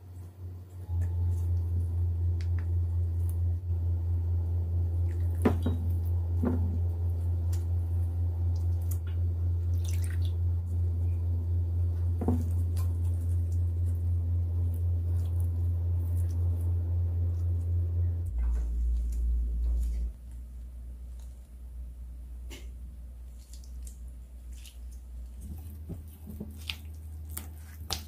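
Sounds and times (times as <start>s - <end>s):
steady low hum: 0.0s - 28.0s
wet squishy paste sounds: 8.4s - 10.7s, 23.2s - 28.0s.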